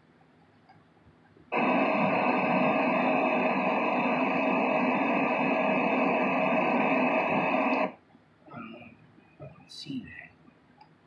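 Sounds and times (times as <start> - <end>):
faint steady tones: 0.0 - 11.0
loud static hiss: 1.5 - 8.0.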